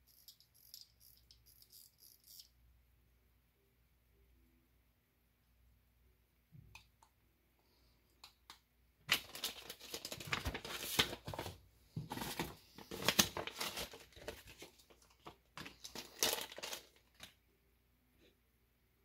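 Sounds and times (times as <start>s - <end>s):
plastic bag crinkling: 9.1s - 17.4s.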